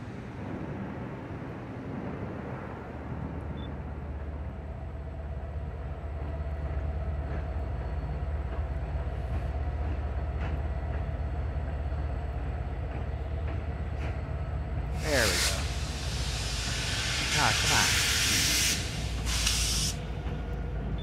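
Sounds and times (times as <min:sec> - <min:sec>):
diesel train rumbling: 0:00.0 - 0:21.0.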